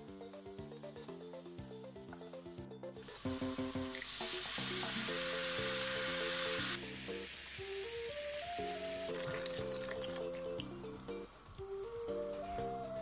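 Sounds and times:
video game music: 0.0 - 3.9, 4.6 - 13.0
food sizzling in a frying pan: 3.1 - 10.7.

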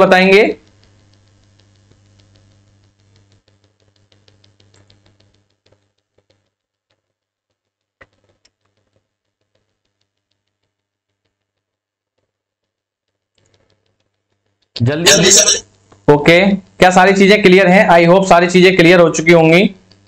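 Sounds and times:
faint low hum: 0.0 - 20.0
faint ticks: 0.6 - 14.8, 15.6 - 16.8, 19.8 - 20.0.

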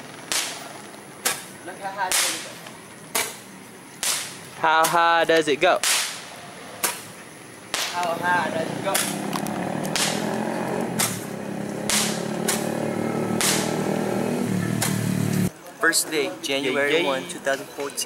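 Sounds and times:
fireworks bangs: 0.0 - 2.6, 5.8 - 14.0.

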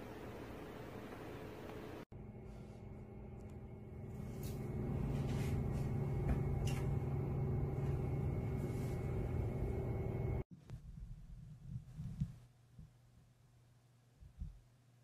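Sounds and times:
low machine hum: 0.0 - 10.5.

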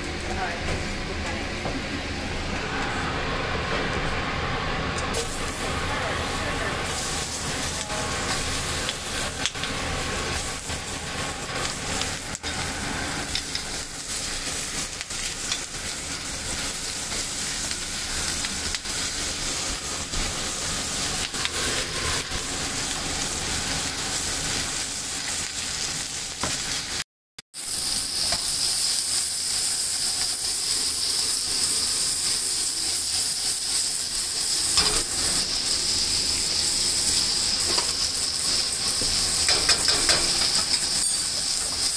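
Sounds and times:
onions sizzling in a skillet: 5.1 - 41.9.

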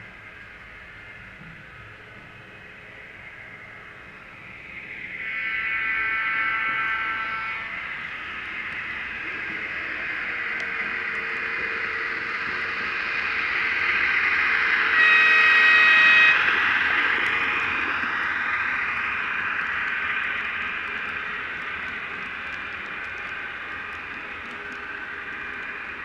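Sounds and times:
model train rolling: 0.0 - 26.0
train horn blast: 14.9 - 16.5.

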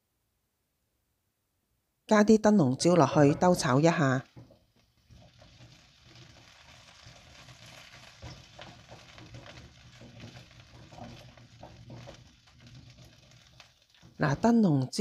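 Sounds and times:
spatula scraping pan: 3.0 - 14.5
peppers sizzling in oil: 3.3 - 14.6.

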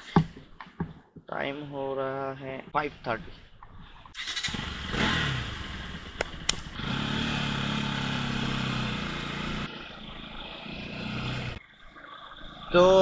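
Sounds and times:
wind and road noise: 3.2 - 11.7
motorcycle engine pulling away: 4.2 - 11.6
sharp clicks: 6.2 - 6.8.

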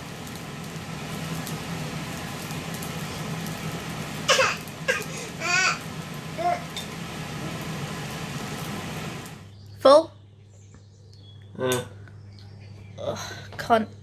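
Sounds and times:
baby laughing and squealing: 4.3 - 5.8.

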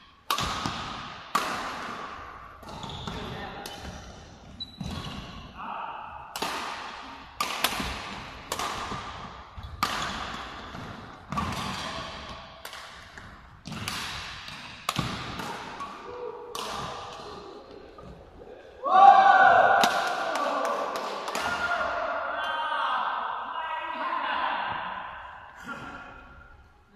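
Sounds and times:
rackets striking shuttlecock: 0.2 - 5.4, 6.3 - 17.4.

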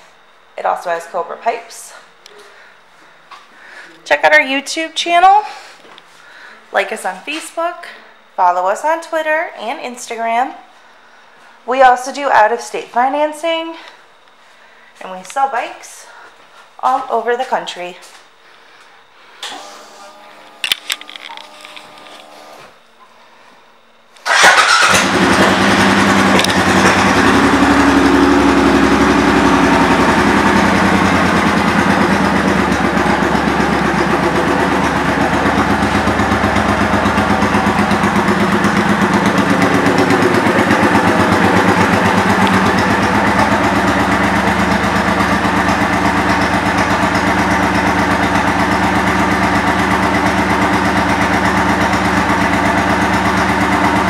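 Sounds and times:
motorcycle engine idling: 24.3 - 54.0.

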